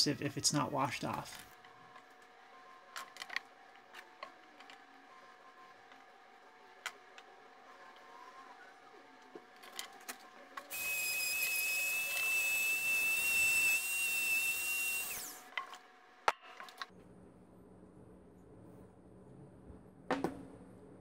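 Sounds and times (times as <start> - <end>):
rotary tool high whine: 10.7 - 15.8.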